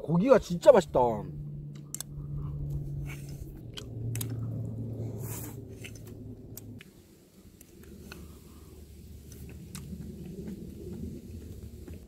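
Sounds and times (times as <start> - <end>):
low steady hum: 0.0 - 12.0
man chewing food: 1.5 - 7.0, 9.2 - 11.9
wet smacking clicks: 3.6 - 4.6.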